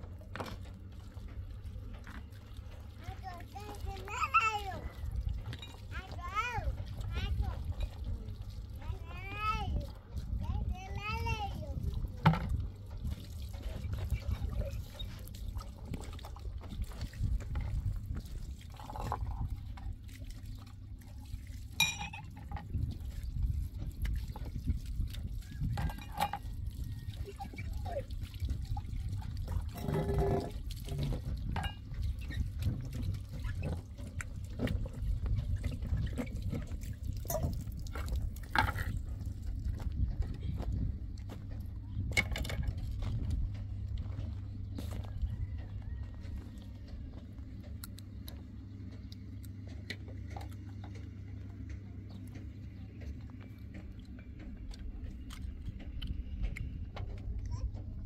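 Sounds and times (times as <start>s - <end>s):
water pouring and splashing: 0.0s - 48.4s
steady low rumble: 0.0s - 58.0s
glasses clinking: 21.8s - 22.3s.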